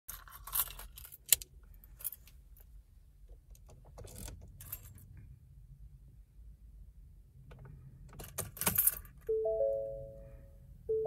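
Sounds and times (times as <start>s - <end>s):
car keys jingling: 0.1s - 1.4s, 8.2s - 9.3s
faint low rumble: 9.2s - 11.0s.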